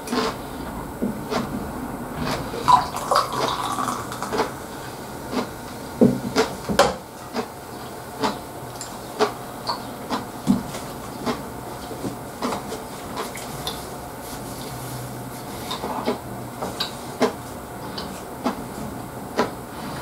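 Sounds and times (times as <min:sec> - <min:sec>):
beer fizzing into a glass: 0:02.7 - 0:04.3.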